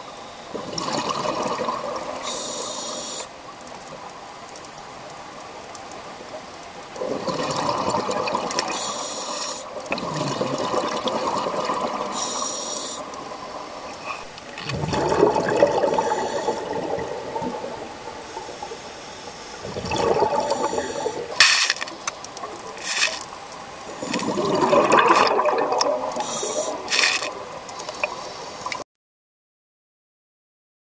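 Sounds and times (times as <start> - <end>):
exhaled bubbles rushing underwater: 0.5 - 2.3, 7.0 - 8.8, 9.8 - 12.2, 14.5 - 19.0, 19.6 - 21.4, 23.7 - 28.8
regulator hissing: 2.2 - 3.3, 12.1 - 13.1, 26.2 - 27.3.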